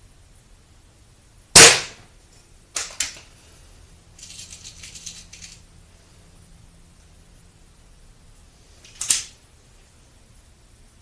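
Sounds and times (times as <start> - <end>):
air pistol shot crack: 1.6 - 2.0.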